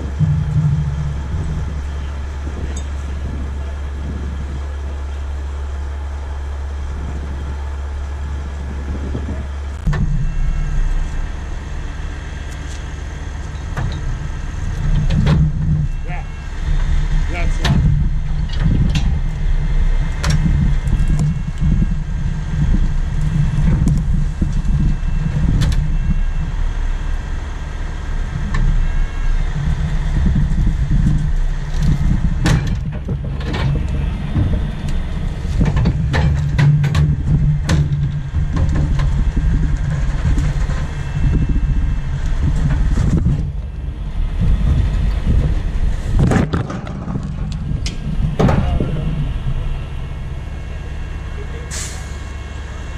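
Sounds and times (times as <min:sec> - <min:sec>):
diesel engine running: 0:00.0 - 0:52.9
faint whine: 0:00.0 - 0:52.9
sharp knocks and clanks: 0:13.5 - 0:16.0, 0:17.5 - 0:19.3, 0:31.0 - 0:41.0, 0:44.7 - 0:49.1.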